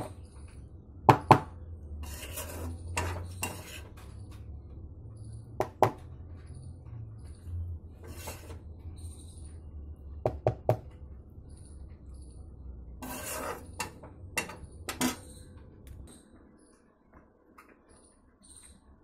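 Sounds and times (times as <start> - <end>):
spoon scraping plastic bowl: 0.0 - 0.3, 2.0 - 4.5, 8.0 - 8.8, 13.0 - 15.5.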